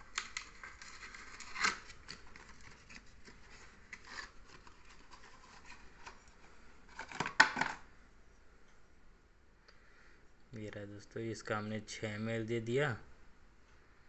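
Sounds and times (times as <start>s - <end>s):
cardboard carton rustling: 0.1s - 7.8s.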